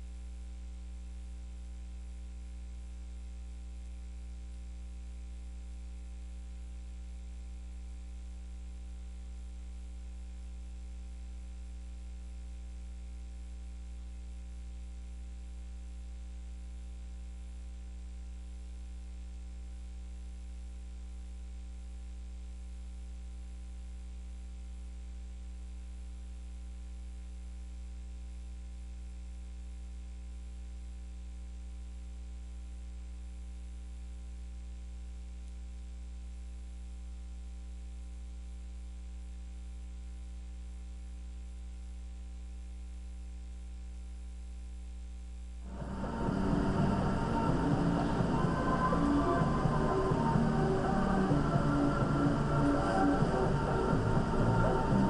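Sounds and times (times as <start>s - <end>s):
electrical hum: 0.0s - 55.0s
background hiss: 45.6s - 55.0s.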